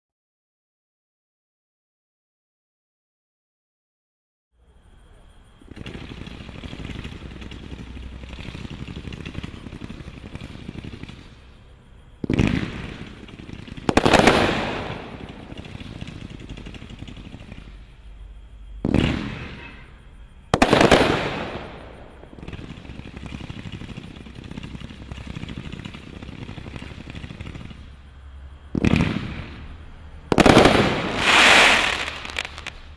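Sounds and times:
fireworks firing rapid shots: 5.7s - 18.0s, 18.8s - 19.9s, 20.5s - 28.1s, 28.7s - 32.9s
loud firework bangs: 5.7s - 18.0s, 18.8s - 28.1s, 28.7s - 32.9s
firework crackling bursts: 5.7s - 18.1s, 20.5s - 28.1s, 28.8s - 32.9s.

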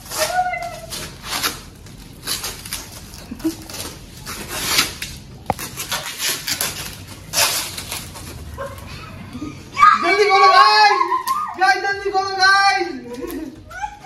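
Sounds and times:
plastic tape crinkling: 0.0s - 9.0s, 13.0s - 13.9s.

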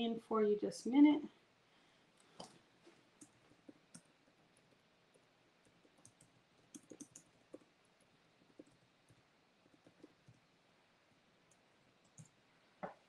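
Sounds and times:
faint clicks and taps: 2.2s - 10.5s, 11.4s - 13.0s.

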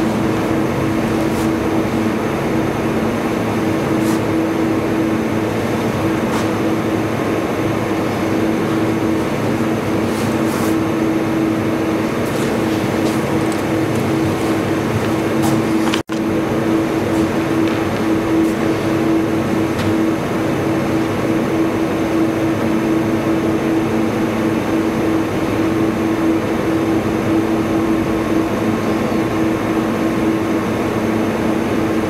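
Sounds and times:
machine hum and fan noise: 0.0s - 32.0s.

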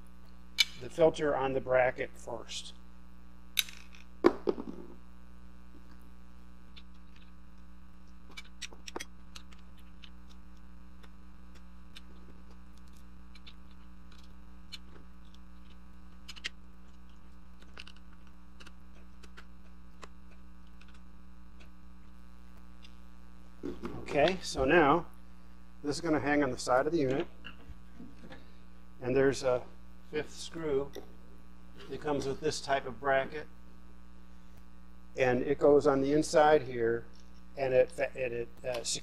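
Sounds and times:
electrical mains hum: 0.0s - 39.0s.

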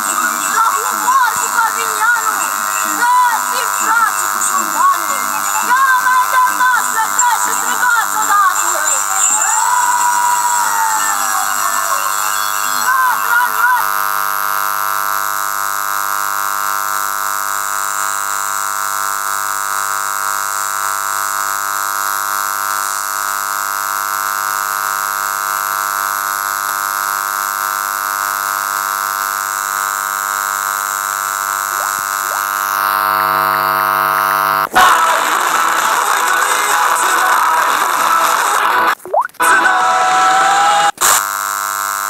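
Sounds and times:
radio hiss: 0.0s - 14.1s, 28.5s - 42.0s
radio buzz: 0.0s - 42.0s.

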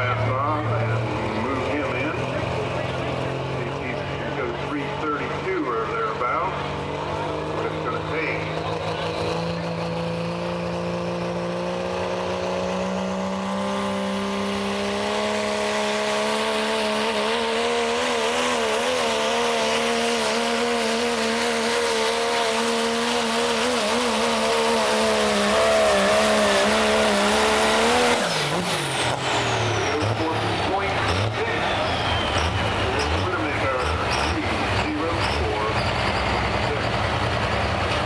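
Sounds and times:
diesel truck engine at full throttle: 0.0s - 38.0s.

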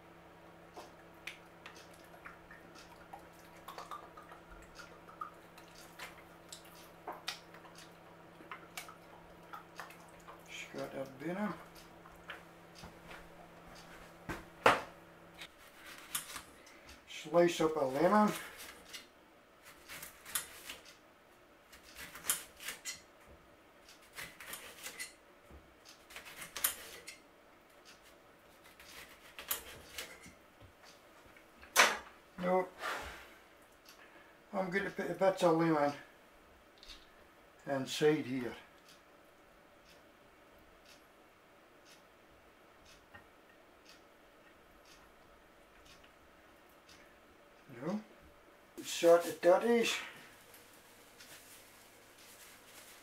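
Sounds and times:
wet drips and squishes: 1.2s - 11.2s.

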